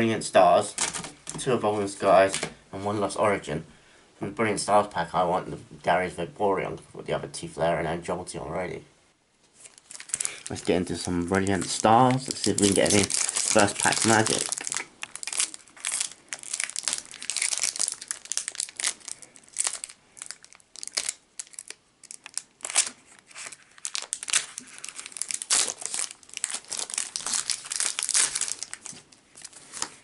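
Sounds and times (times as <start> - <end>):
foil wrapper crinkling and tearing: 9.6 - 30.0.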